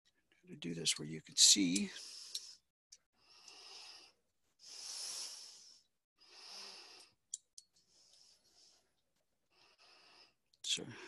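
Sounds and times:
person breathing: 1.8s - 10.4s.

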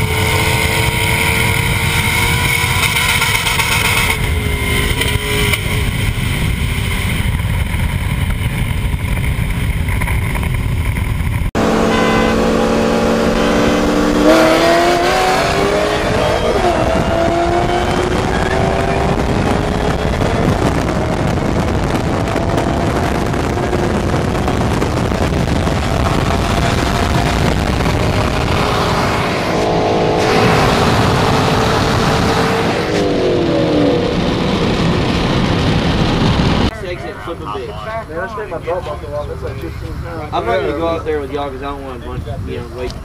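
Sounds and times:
car engine at full throttle: 0.0s - 36.8s
wind and road noise: 0.0s - 43.0s.

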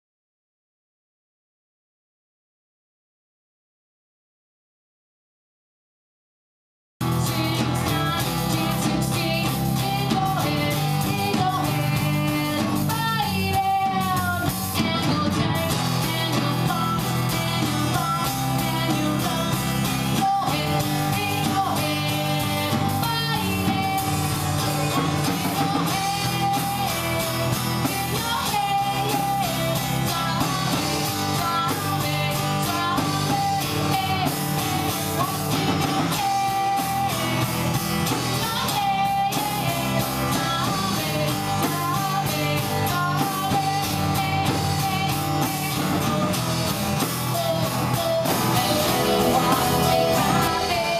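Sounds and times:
drum kit with cymbals: 7.0s - 50.9s
woman singing: 7.2s - 24.4s, 25.2s - 50.9s
acoustic guitar strumming: 48.4s - 50.9s.

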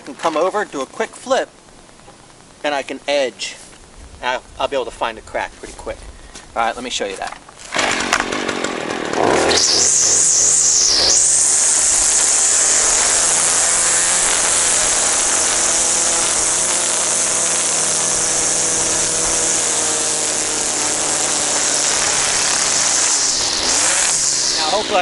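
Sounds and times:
string trimmer cutting grass: 7.7s - 25.0s.

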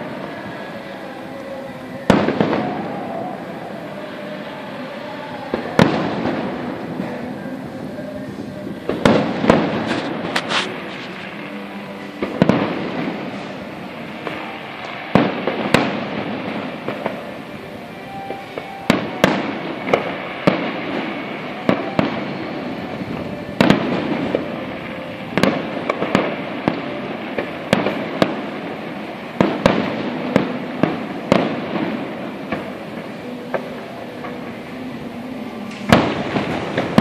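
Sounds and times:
rolling rumble and echo: 0.0s - 37.0s
firework shells bursting: 8.9s - 34.5s.

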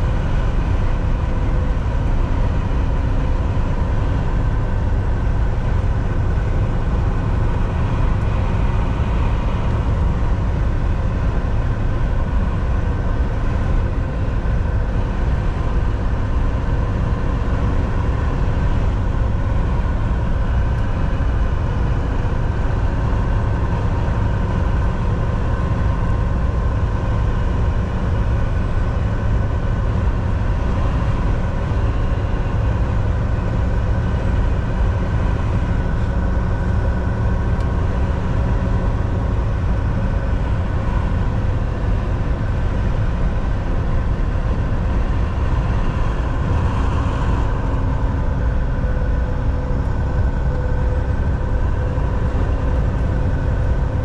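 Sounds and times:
road rumble: 0.0s - 54.0s
truck engine drone: 0.0s - 54.0s.

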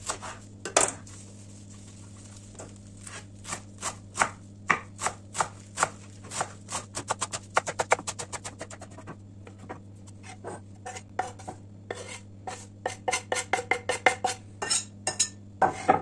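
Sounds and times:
steady low hum: 0.0s - 16.0s
knife chopping on wooden board: 3.0s - 14.4s
knife scraping and tapping board: 7.6s - 14.8s.

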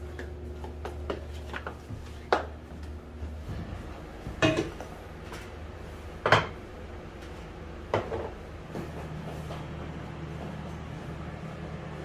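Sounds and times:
dishes and utensils clinking: 4.4s - 4.9s.

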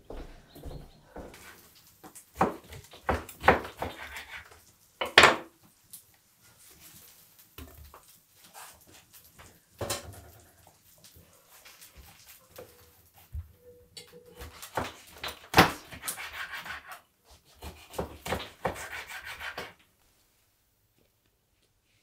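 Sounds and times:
knife cutting fish on board: 2.4s - 4.6s, 14.4s - 19.8s.

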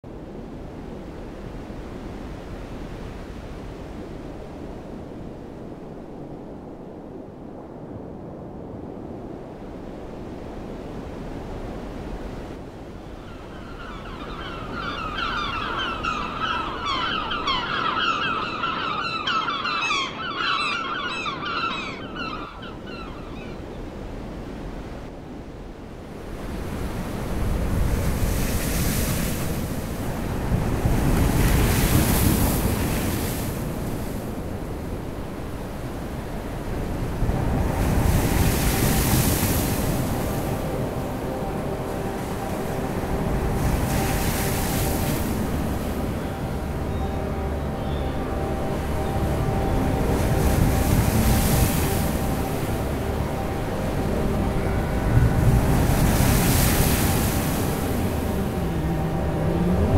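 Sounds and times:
wind: 0.0s - 59.9s
waves washing: 0.1s - 59.9s
seabirds calling: 13.0s - 24.1s, 35.5s - 59.9s.

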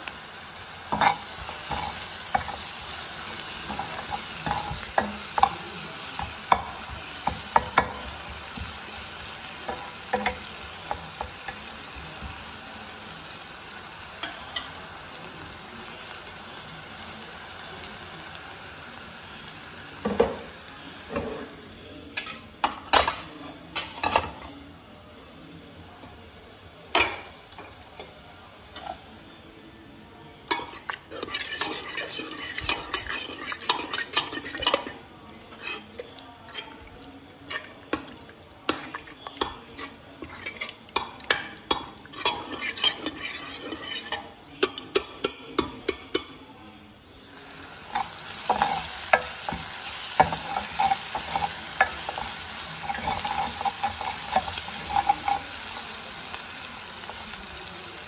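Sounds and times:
shallots sizzling in hot oil: 0.0s - 23.2s, 26.2s - 29.5s, 30.3s - 46.3s, 47.2s - 58.0s
ladle scraping pot: 30.5s - 36.9s, 37.5s - 46.3s, 47.9s - 55.6s.

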